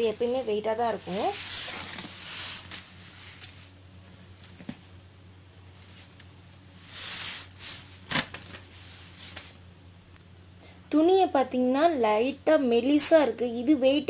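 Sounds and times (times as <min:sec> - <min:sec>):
fabric rustling: 0:00.0 - 0:09.6
faint steady hum: 0:00.0 - 0:14.0.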